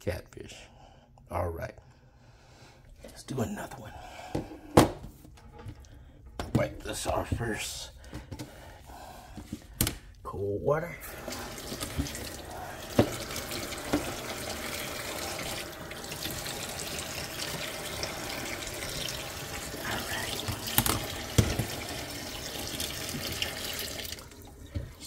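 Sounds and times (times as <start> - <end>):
tap water running into sink: 11.0 - 25.0.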